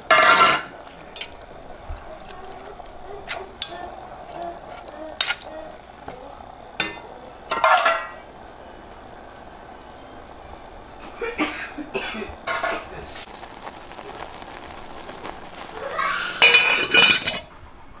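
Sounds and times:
lid clattering on pot: 16.4 - 17.5.

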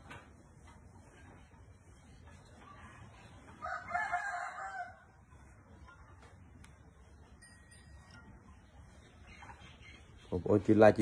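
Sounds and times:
rooster crowing: 3.6 - 5.1.

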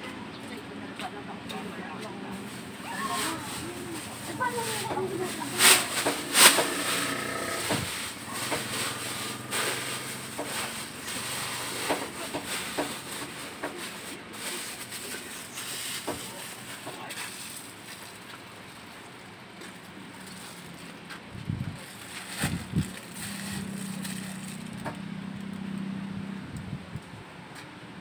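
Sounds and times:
person speaking: 1.3 - 17.5.

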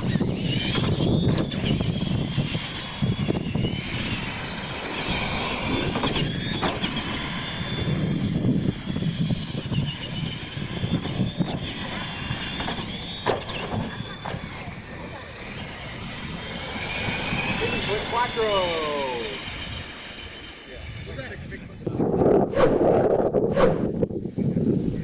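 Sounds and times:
rc truck motor whine: 0.0 - 22.5.

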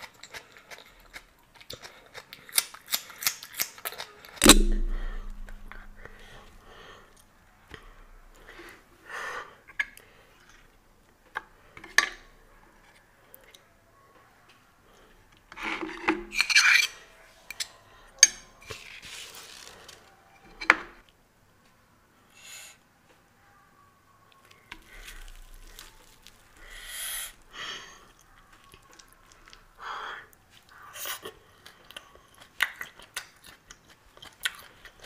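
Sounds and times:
crisp fritters breaking: 24.7 - 26.8.

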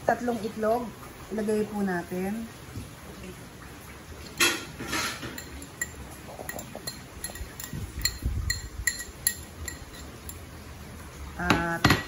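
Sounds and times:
glass cup clinking on glass bowl: 4.4 - 10.4.

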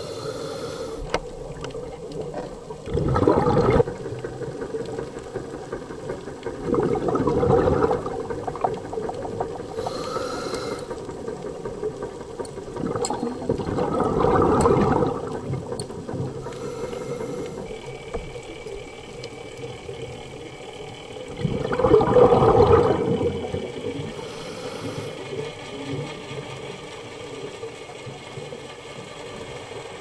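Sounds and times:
steady underwater hiss: 0.0 - 30.0
gurgling exhaled bubbles: 1.3 - 12.0, 12.6 - 19.0, 19.6 - 26.2.

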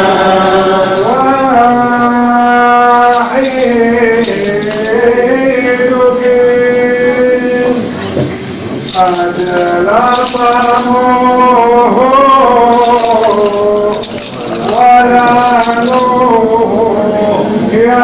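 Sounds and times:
metallic jingling: 0.3 - 1.4, 2.8 - 5.3, 8.8 - 11.6, 12.5 - 17.0.

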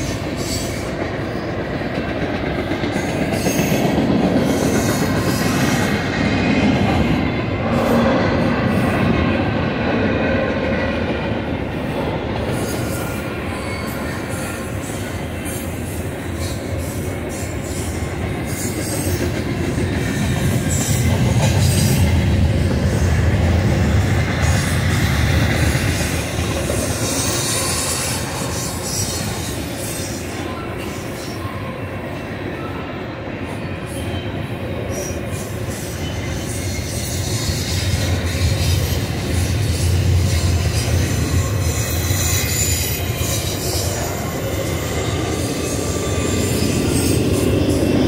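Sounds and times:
train wheels rumbling on rail: 0.0 - 48.0
high wheel squeal: 12.5 - 19.3, 25.7 - 31.8, 33.7 - 48.0.

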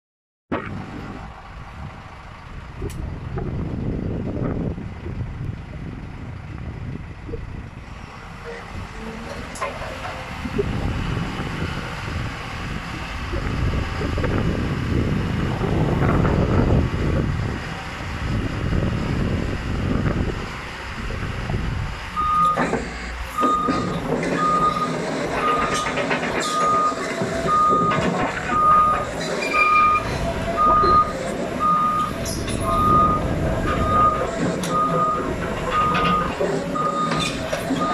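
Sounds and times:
excavator diesel engine rumbling: 0.5 - 37.9
motion alarm beeping: 22.2 - 22.6, 23.4 - 37.9.

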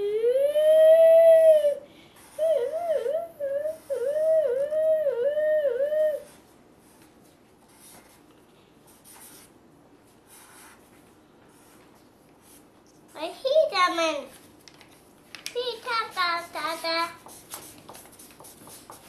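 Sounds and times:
child making siren-like wail: 0.0 - 1.8
marker scratching on paper: 7.7 - 8.2, 8.9 - 9.5, 10.2 - 11.8, 15.7 - 19.0.

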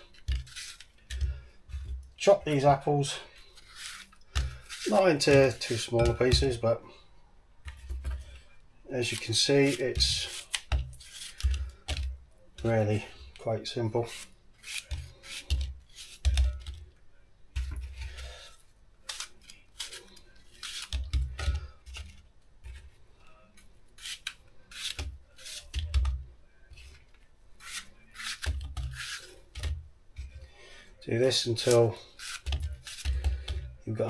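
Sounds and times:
knife cutting apple: 0.0 - 2.7, 3.4 - 6.6, 9.0 - 13.0, 14.0 - 16.8, 17.6 - 22.9, 24.0 - 30.4, 31.3 - 34.0.

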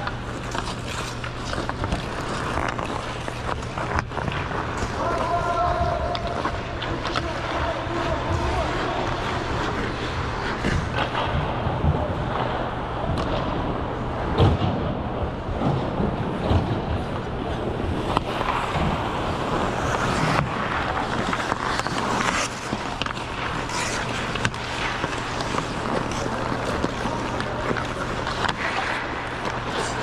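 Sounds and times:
ice skate blades scraping: 0.0 - 11.4, 17.8 - 30.0
steady low hum: 0.0 - 30.0.

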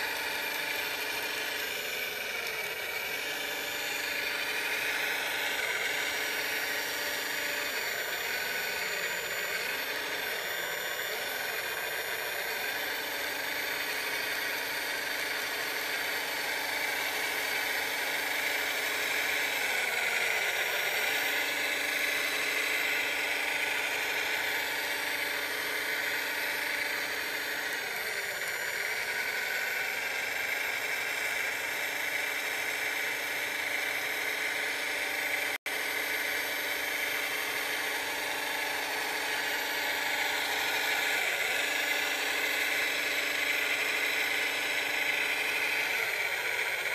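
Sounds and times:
model loader motor whine: 0.0 - 46.9.

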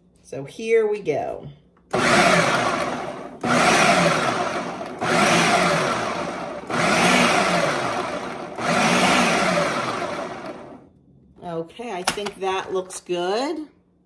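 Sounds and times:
food processor pulsing: 1.9 - 10.9.

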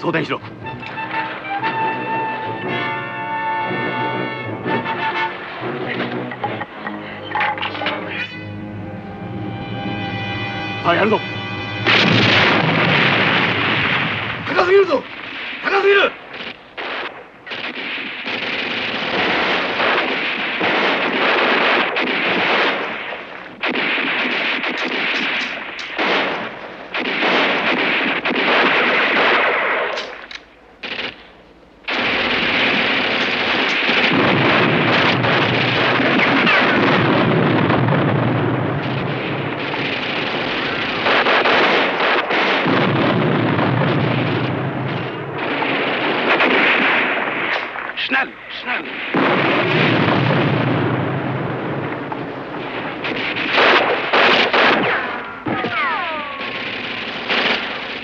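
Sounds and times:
explosions rumbling: 4.6 - 58.0
cannon shots: 10.2 - 58.0
rifle and machine-gun fire: 11.0 - 31.3, 31.9 - 48.0, 48.7 - 58.0.

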